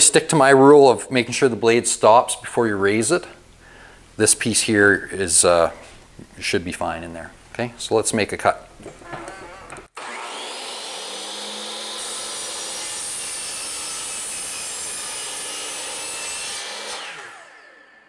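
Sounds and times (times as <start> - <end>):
mitre saw motor whining: 9.0 - 14.1, 16.6 - 18.0
saw blade cutting wood: 9.2 - 18.0.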